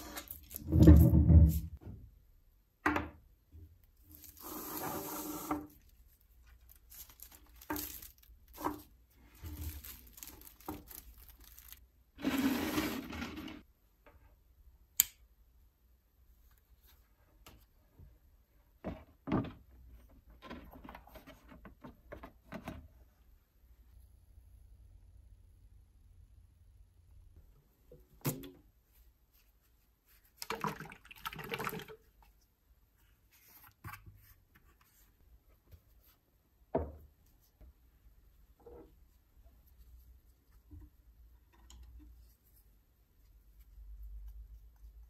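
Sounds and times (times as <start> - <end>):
plastic film rustling and crinkling: 4.0 - 4.8, 5.8 - 11.8.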